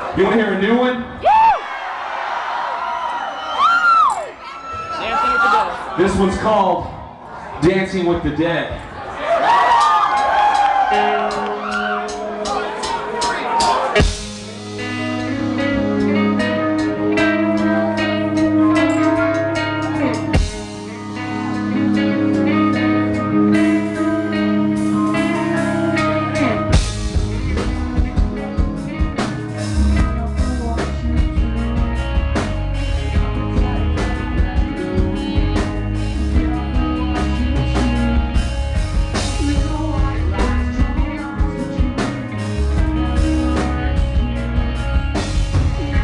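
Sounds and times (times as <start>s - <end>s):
live rock band playing: 9.4s - 46.0s
ringing guitar: 10.9s - 46.0s
person singing: 14.8s - 46.0s.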